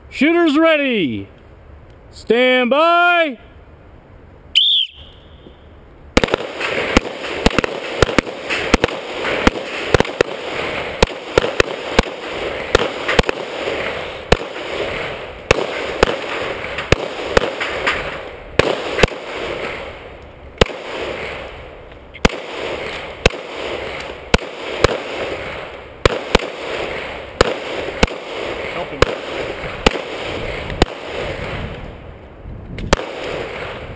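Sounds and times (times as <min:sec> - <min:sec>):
rapid handgun fire: 0:06.2 - 0:19.9, 0:20.6 - 0:21.5, 0:22.2 - 0:31.7, 0:32.9 - 0:33.9.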